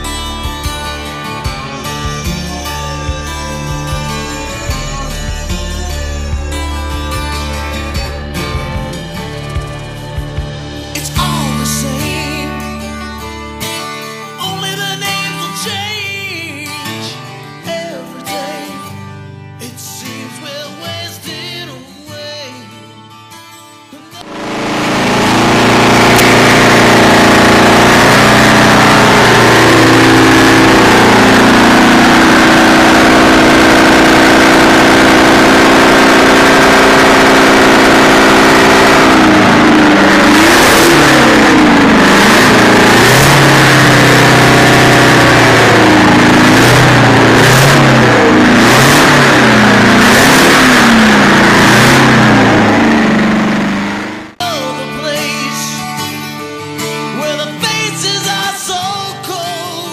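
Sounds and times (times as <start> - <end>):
diesel truck engine idling and revving: 0.0 - 13.6, 24.2 - 54.4.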